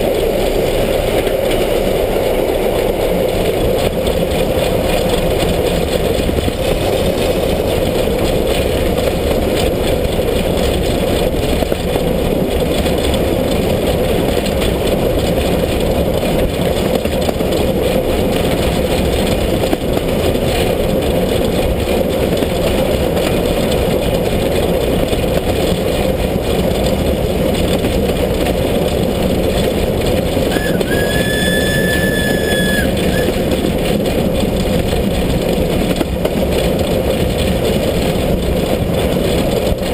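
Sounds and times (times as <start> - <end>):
steam locomotive running: 0.0 - 39.9
steam whistle blowing: 30.5 - 33.6.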